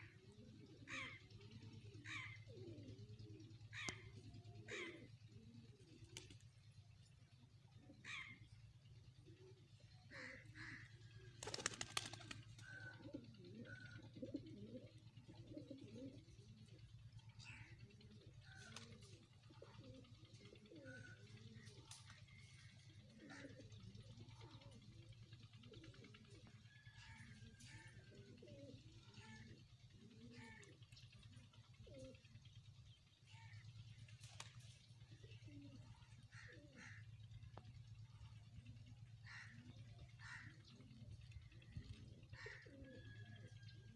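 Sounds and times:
pigeons cooing: 0.0 - 43.9
pigeon wing claps: 11.4 - 12.5.

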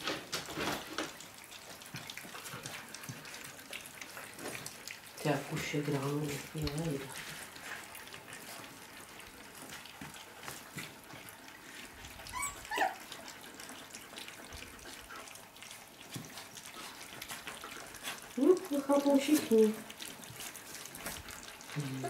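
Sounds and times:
puppies lapping food: 0.0 - 22.0
high puppy squeak: 12.2 - 13.1.

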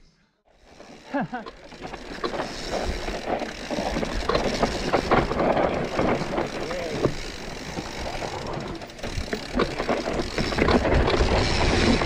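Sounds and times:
bike tyres over rocks: 0.5 - 12.0
bike clattering and rattling: 0.6 - 12.0.

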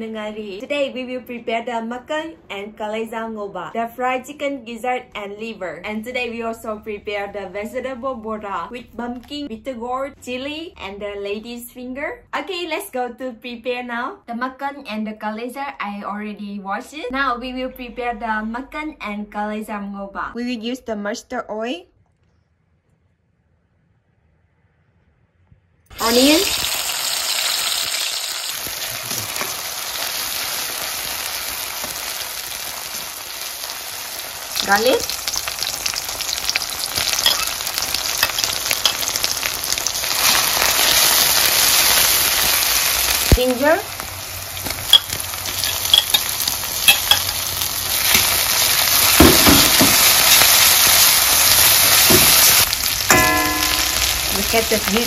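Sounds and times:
onion sizzling in hot oil: 25.9 - 55.0
metal spatula scraping pan: 37.0 - 39.3.

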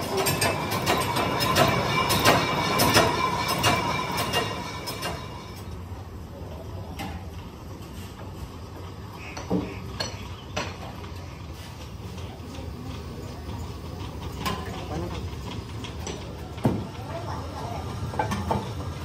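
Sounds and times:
metal clanks: 0.0 - 5.5
rapid rattling and clinking: 0.0 - 5.6.

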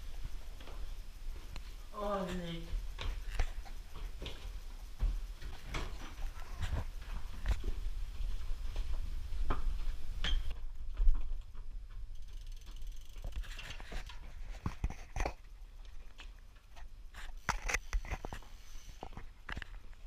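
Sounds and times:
bike clicking and rattling: 2.8 - 18.4.

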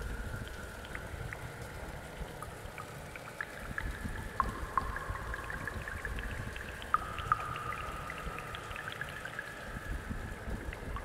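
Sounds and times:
water plinks and drips: 0.0 - 11.0.

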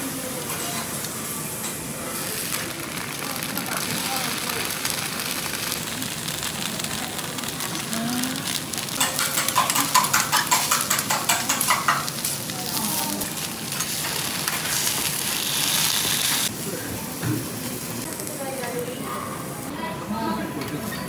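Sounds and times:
food sizzling on a griddle: 0.0 - 20.3
metal utensils clacking on griddle: 8.4 - 16.2.

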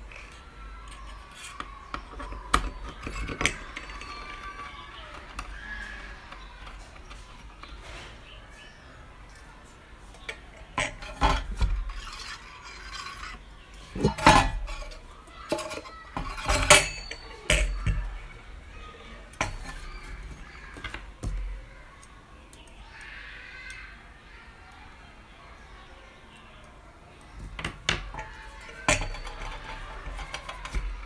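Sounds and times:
metal skewers clinking on grill: 0.9 - 5.5, 10.8 - 18.3, 28.1 - 31.0.

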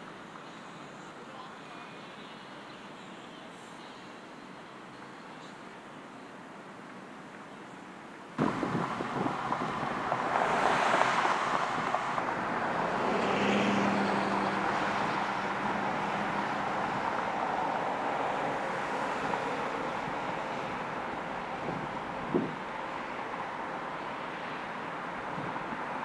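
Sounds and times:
passing road traffic: 6.5 - 26.0
wind on microphone: 8.4 - 13.4, 14.2 - 22.9, 25.2 - 26.0
low engine hum: 8.4 - 26.0.

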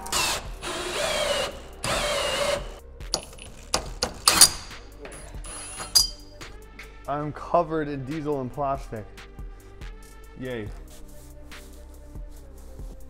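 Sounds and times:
cordless drill cutting plastic: 0.0 - 2.8
scattered clicks and knocks: 3.1 - 5.2.

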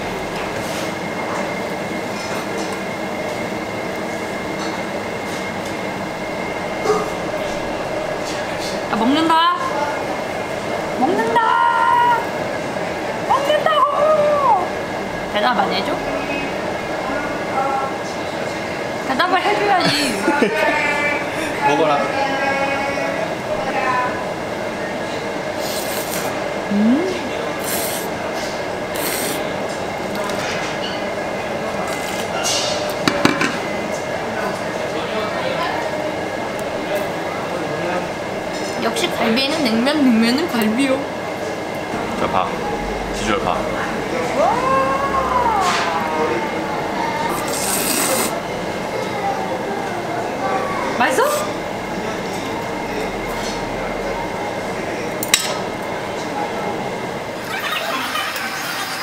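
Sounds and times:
restaurant din: 0.0 - 59.0
noodles slurped: 25.6 - 26.4, 27.6 - 28.2, 28.9 - 29.5, 47.2 - 48.4
short rising hum: 41.9 - 47.0.

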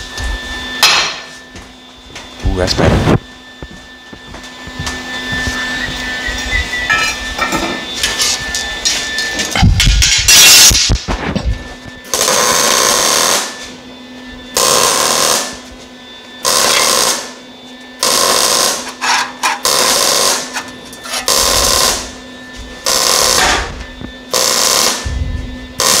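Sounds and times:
welder crackling bursts: 10.0 - 11.2, 12.1 - 13.5, 14.6 - 15.6, 16.4 - 17.3, 18.0 - 20.6, 22.9 - 25.1, 25.8 - 26.0.

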